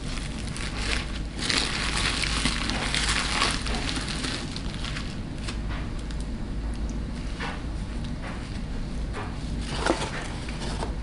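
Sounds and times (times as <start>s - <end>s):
aluminium foil crumpling: 0.0s - 6.2s.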